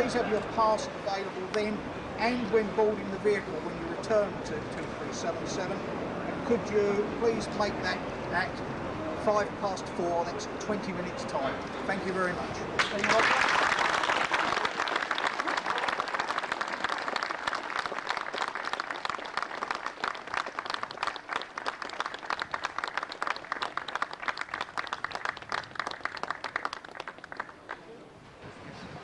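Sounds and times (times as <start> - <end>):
crowd applauding: 12.8 - 27.8.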